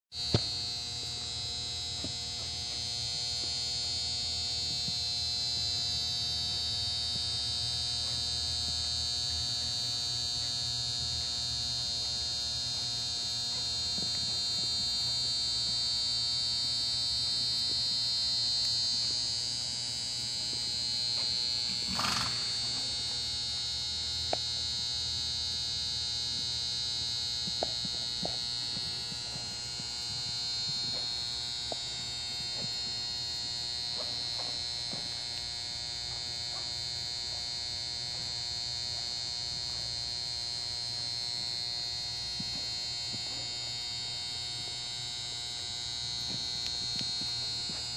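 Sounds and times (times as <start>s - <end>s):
high-pitched whine: 0.1s - 36.6s
steady electrical hum: 0.1s - 47.9s.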